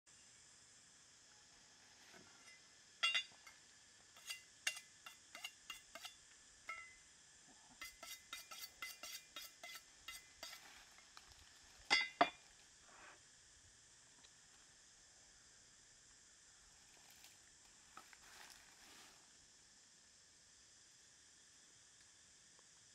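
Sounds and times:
knife blades clinking: 3.0s - 3.6s, 7.8s - 10.6s.

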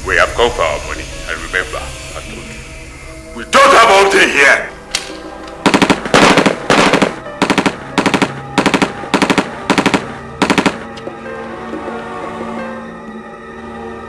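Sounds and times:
automatic gunfire bursts: 5.6s - 10.9s.

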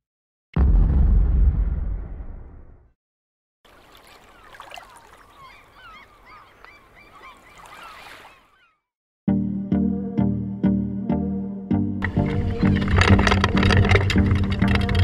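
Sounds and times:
deep boom: 0.6s - 2.9s
flock of birds calling: 4.2s - 8.8s.

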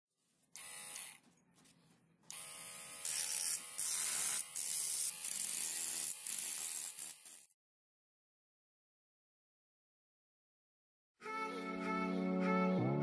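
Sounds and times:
small motor humming: 2.3s - 7.5s.

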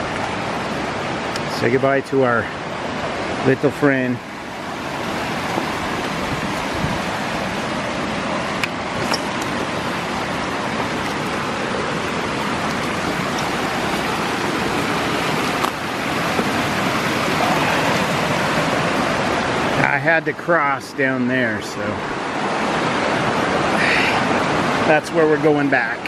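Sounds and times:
creek rushing: 0.0s - 26.0s.

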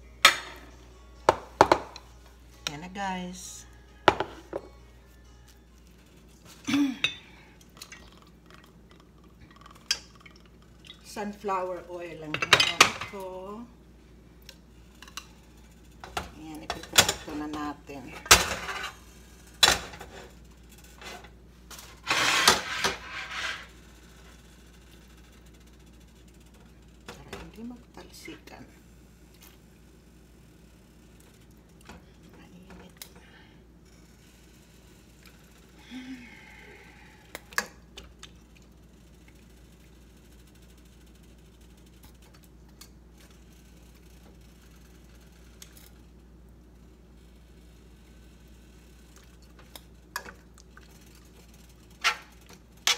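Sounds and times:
steady low hum: 22.8s - 52.9s.

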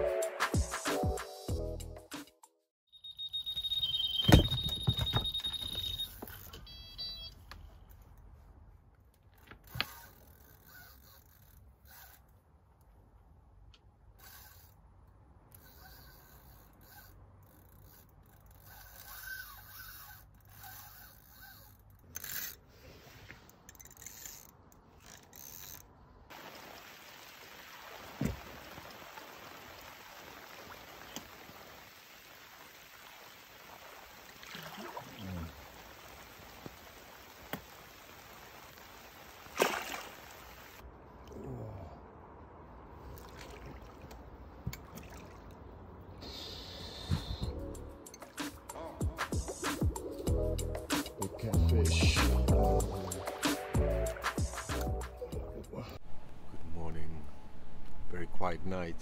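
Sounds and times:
bite alarm high beep: 2.9s - 7.4s
quick beeps: 2.9s - 7.4s.

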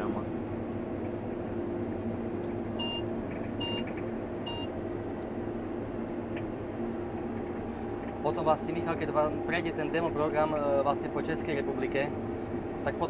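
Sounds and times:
combine harvester humming: 0.0s - 13.0s
short electronic beeps: 2.8s - 3.0s, 3.6s - 4.7s.

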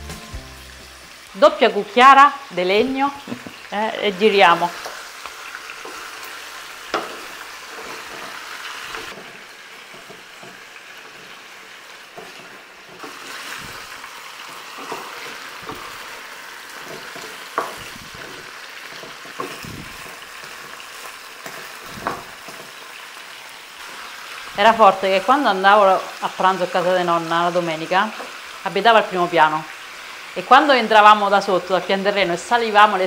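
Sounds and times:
chicken sizzling in oil: 0.0s - 33.0s
wooden spoons knocking pan: 6.8s - 11.3s, 14.5s - 16.2s, 16.8s - 20.8s, 21.4s - 22.8s.

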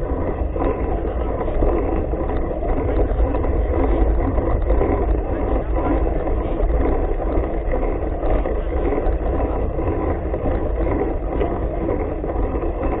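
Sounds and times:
bike tyre rolling on asphalt: 0.0s - 13.0s
wind rumble on microphone: 0.0s - 13.0s.

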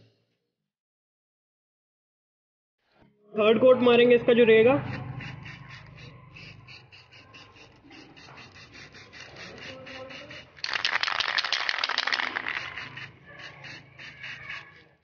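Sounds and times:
spray paint rushing: 5.2s - 14.8s
spray can being shaken clicking: 10.6s - 12.8s.

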